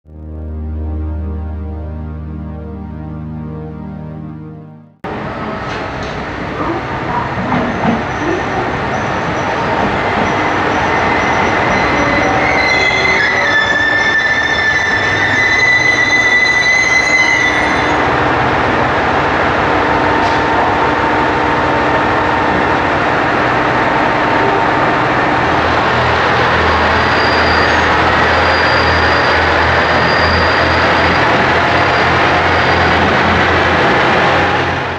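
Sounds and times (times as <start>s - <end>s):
deep engine hum: 0.0s - 5.3s
train rolling noise: 5.1s - 34.9s
train wheels squealing: 7.6s - 18.0s, 26.6s - 33.0s.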